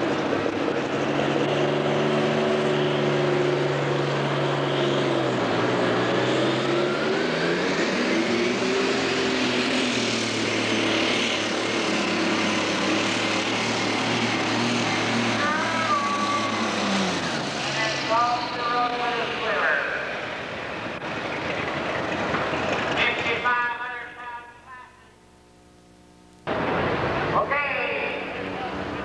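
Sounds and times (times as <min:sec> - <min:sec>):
diesel engine running hard: 0:00.0 - 0:24.4, 0:26.2 - 0:29.0
high whine: 0:07.7 - 0:29.0.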